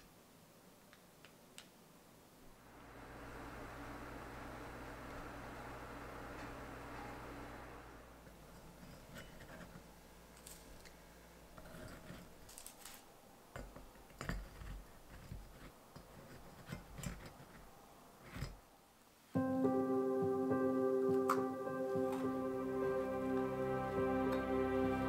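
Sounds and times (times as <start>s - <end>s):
soft music: 19.4s - 25.0s.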